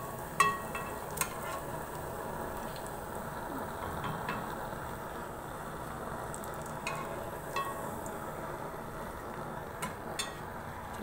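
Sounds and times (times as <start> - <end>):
food sizzling in oil: 0.0 - 11.0
utensil clinking against pan: 0.4 - 1.6.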